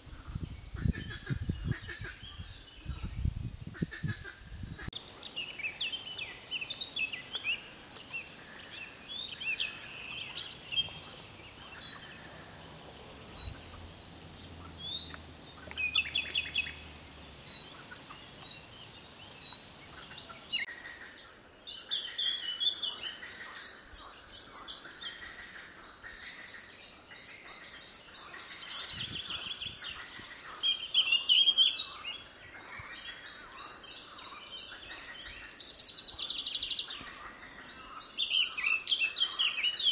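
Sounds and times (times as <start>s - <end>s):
songbirds chirping and trilling: 0.0s - 39.9s
soft background hiss: 5.0s - 20.7s.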